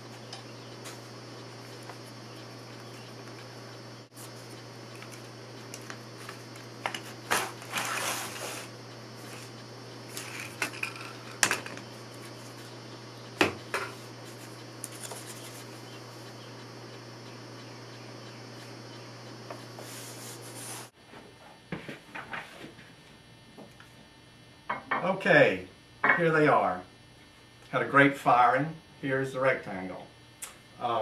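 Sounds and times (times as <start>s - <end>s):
steady low hum: 0.0s - 31.0s
wood scraping rub: 0.8s - 12.8s, 19.5s - 20.9s
wooden pieces knocking and clattering: 10.2s - 11.8s.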